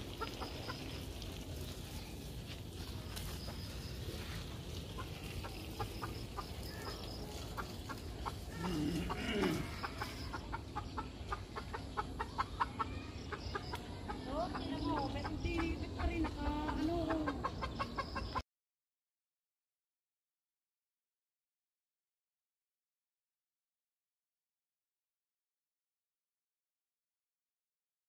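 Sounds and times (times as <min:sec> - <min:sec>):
chickens clucking: 0:00.0 - 0:18.4.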